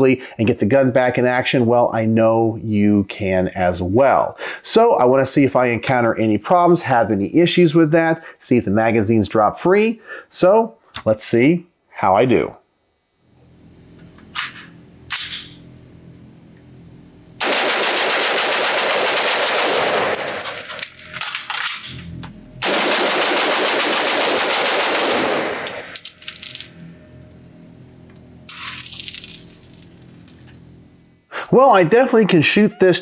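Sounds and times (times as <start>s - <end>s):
rifle shots echoing indoors: 17.4s - 20.7s, 22.6s - 26.0s.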